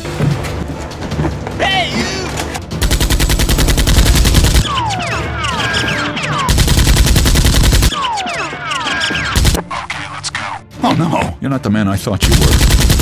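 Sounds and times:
automatic gunfire: 2.8 - 4.6, 6.5 - 8.0, 12.2 - 13.0.

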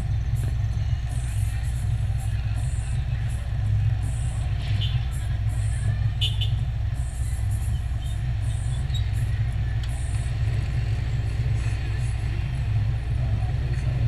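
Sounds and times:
car engine idling: 0.0 - 14.0
motorcycles in street traffic: 0.0 - 14.0.

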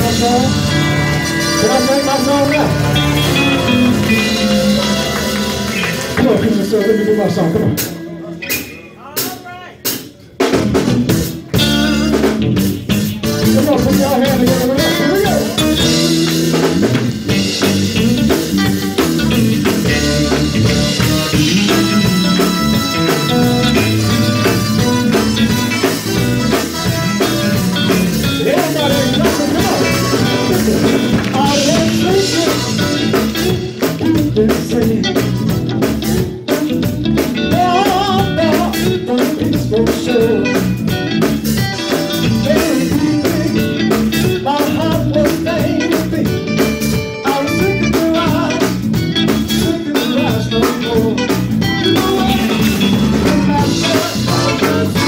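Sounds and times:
band with drums: 0.0 - 55.0
men singing gospel: 28.3 - 33.0, 49.6 - 55.0.

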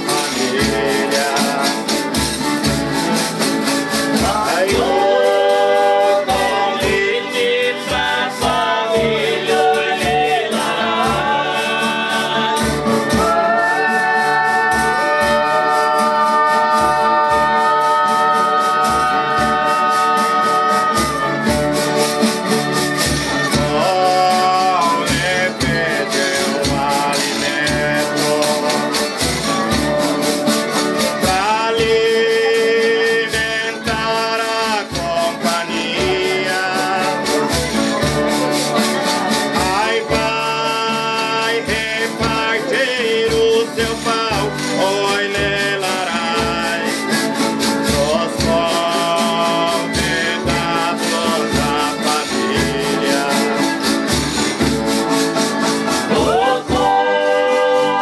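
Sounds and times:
voices singing long notes: 0.0 - 2.1, 3.9 - 29.4, 55.9 - 58.0
shaker and percussion beat: 0.0 - 58.0
strummed guitars: 0.0 - 58.0.

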